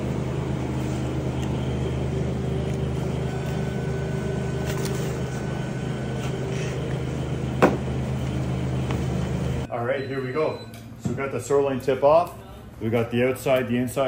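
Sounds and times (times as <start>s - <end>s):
low machinery hum: 0.0s - 9.7s.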